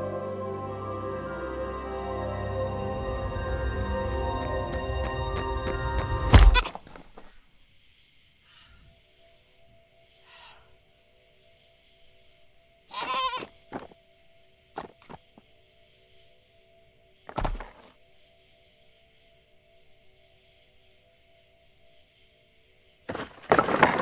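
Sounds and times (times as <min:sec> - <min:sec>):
goat bleating: 0:06.3 - 0:06.8, 0:12.9 - 0:13.5.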